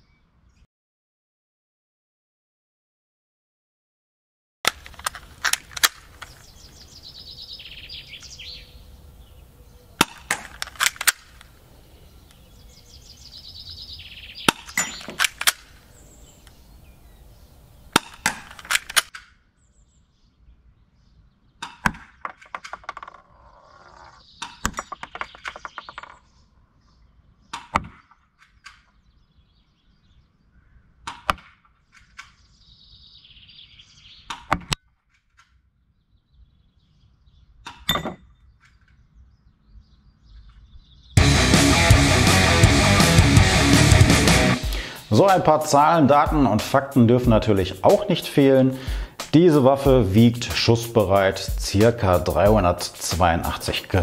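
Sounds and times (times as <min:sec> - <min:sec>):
pellets clanging on targets: 0:14.5 - 0:15.4.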